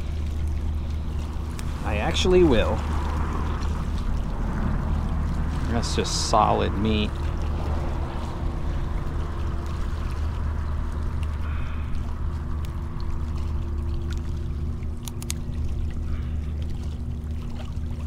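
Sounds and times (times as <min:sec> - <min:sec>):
wind on microphone: 0:00.0 - 0:13.5
faint steady hum: 0:00.0 - 0:18.0
water washing against rocks: 0:00.0 - 0:18.0.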